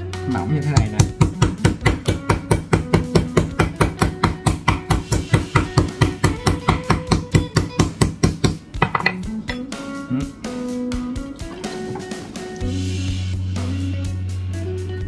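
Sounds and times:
meat mallet pounding meat: 0.7 - 9.7.

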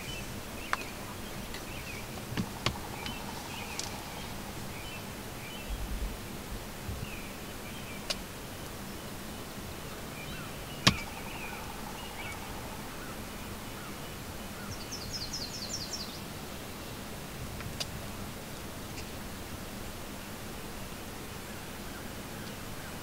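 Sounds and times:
distant songbirds chirping: 0.0 - 17.2
steady hiss: 0.0 - 23.0
high bird trill: 1.9 - 6.1, 10.3 - 15.9.

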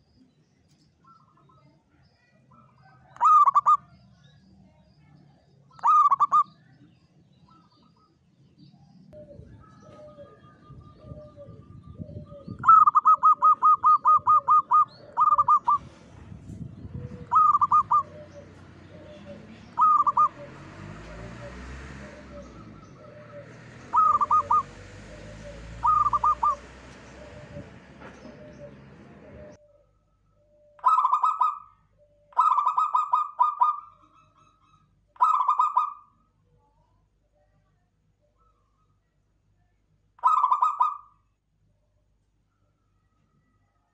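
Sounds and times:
faint low coos in background: 1.0 - 26.4
doves cooing: 2.5 - 3.9, 5.7 - 6.5, 9.2 - 16.2, 16.8 - 29.6, 30.7 - 34.2, 35.2 - 36.1, 40.2 - 41.1.

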